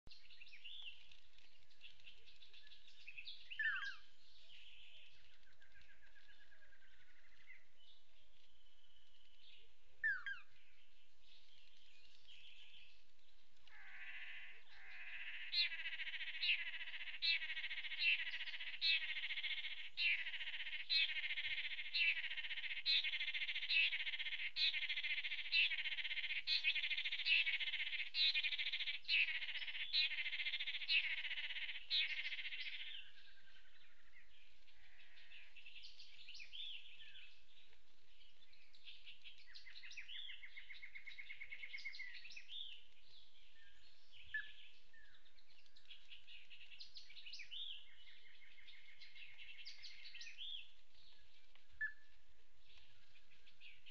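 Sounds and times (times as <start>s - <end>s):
birds calling rapidly: 13.6s - 37.6s.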